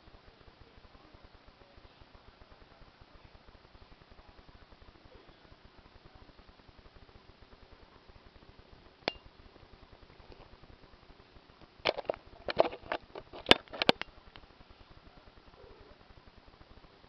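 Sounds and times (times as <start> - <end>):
camera handling clicks and knocks: 11.9 - 14.0.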